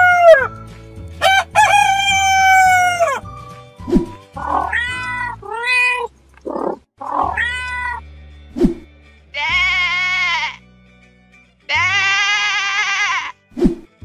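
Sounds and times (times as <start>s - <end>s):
light background music: 0.0s - 14.0s
cat meowing: 4.4s - 8.0s, 11.7s - 13.3s
sheep bleating: 9.3s - 10.6s, 11.7s - 13.4s.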